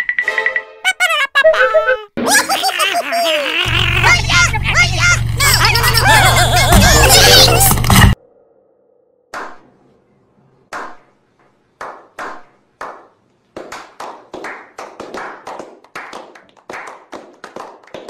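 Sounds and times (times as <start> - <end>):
men clapping: 11.8 - 18.0.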